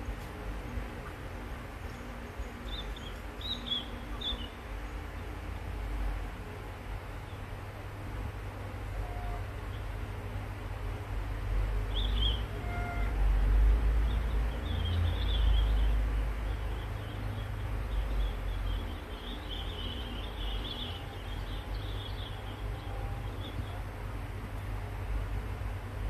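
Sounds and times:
small birds chirping: 0.0 - 5.4, 11.8 - 13.2, 13.8 - 24.8.

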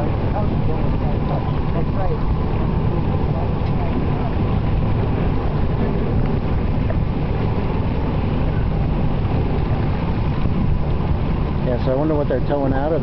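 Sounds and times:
steady low rumble: 0.0 - 13.0
wind noise on microphone: 0.0 - 13.0.

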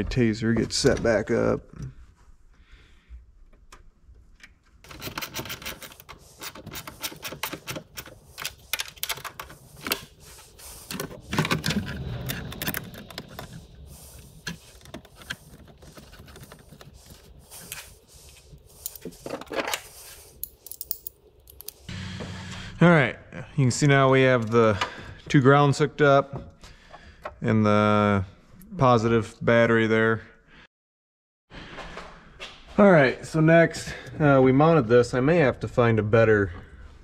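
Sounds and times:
hand tools clicking and rattling: 4.8 - 21.9.

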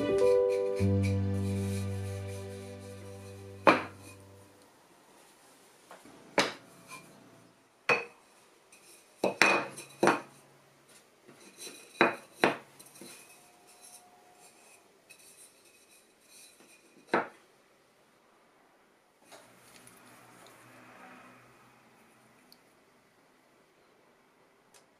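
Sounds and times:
wooden blocks knocking on workbench: 3.6 - 4.0.

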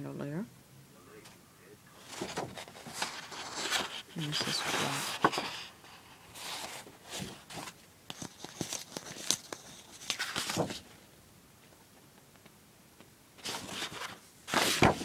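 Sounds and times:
paper rustling and sliding: 1.9 - 11.0, 13.4 - 15.0.

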